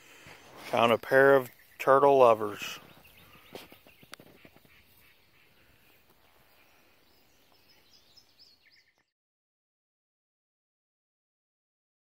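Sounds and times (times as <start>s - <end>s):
faint outdoor ambience: 0.0s - 9.0s
faint bird chirps: 0.1s - 9.1s.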